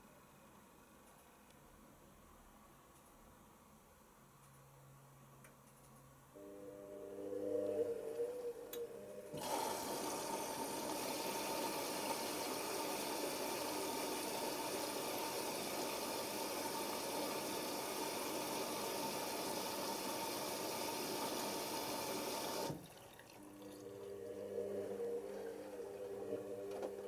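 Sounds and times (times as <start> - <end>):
washing machine water intake hiss: 9.3 - 23.8.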